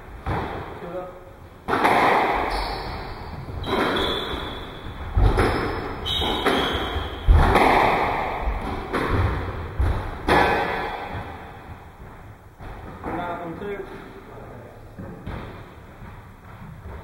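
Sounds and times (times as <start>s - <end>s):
squash ball hitting rackets and walls: 0.0s - 13.8s, 14.9s - 17.0s
shoes squeaking on wooden floor: 2.4s - 7.4s.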